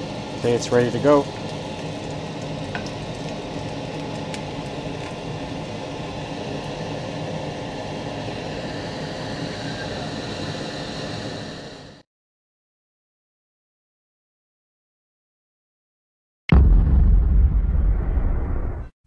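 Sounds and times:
oil sizzling in a frying pan: 0.0s - 11.6s.

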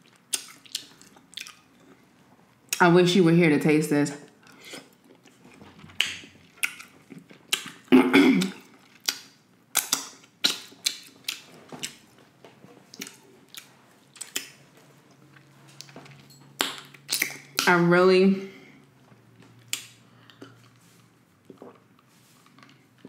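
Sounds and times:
mouth chewing wet smacks: 0.0s - 2.0s, 4.7s - 12.0s, 12.9s - 17.7s, 19.5s - 20.8s.

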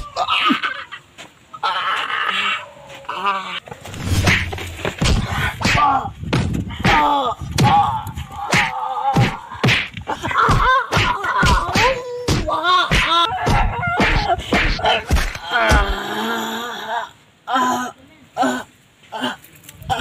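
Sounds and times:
voices shouting and crying out: 6.8s - 16.0s
sharp smacks or blows: 8.5s - 16.0s.

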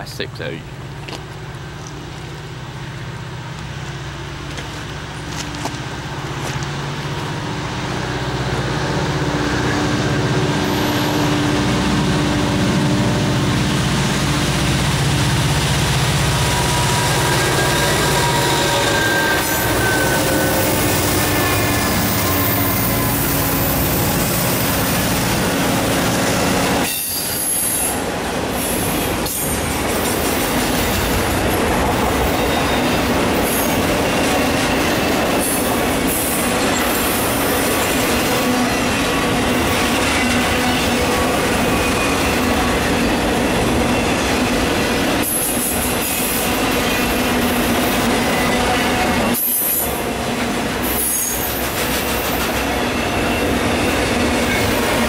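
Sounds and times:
locomotive engines rumbling: 0.0s - 55.0s
train cars rolling and clattering: 0.0s - 55.0s
train wheels squealing: 16.4s - 24.7s, 26.8s - 28.0s, 32.2s - 38.6s, 48.2s - 50.0s, 50.8s - 55.0s.

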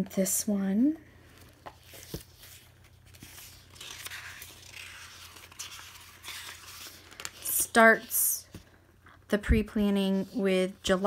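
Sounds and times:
paper pages rustling: 1.3s - 8.7s.

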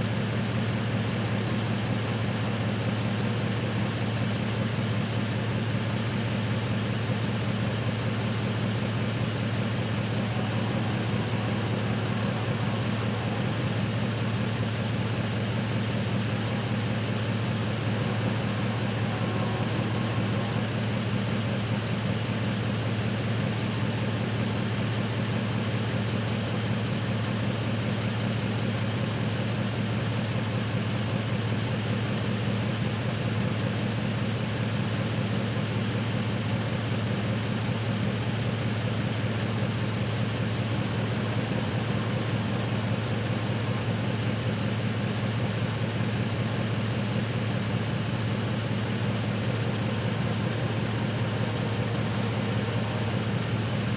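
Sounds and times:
truck engine idling: 0.0s - 53.9s.

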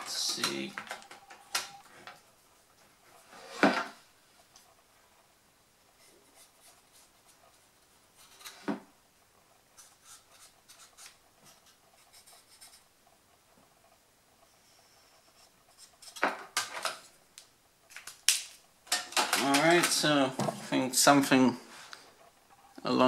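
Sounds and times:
pen scratching plastic: 9.8s - 12.8s.

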